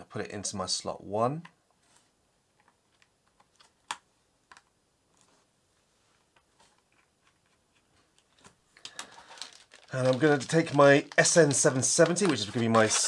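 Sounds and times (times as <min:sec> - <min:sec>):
small clicks and taps: 0:02.6 - 0:04.8.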